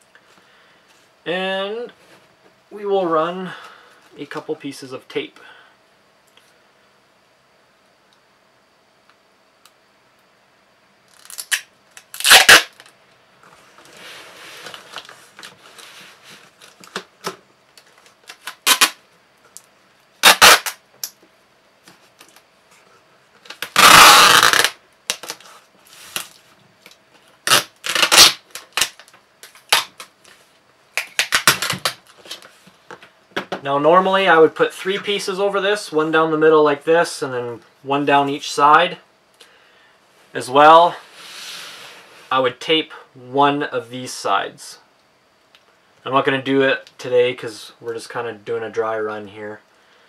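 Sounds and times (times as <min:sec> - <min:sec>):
packing tape ripping off roll: 0:11.1 - 0:12.9, 0:13.9 - 0:19.0, 0:20.2 - 0:21.2, 0:23.4 - 0:30.2, 0:31.0 - 0:32.5
rustling and handling noises: 0:11.1 - 0:19.7, 0:21.2 - 0:33.5.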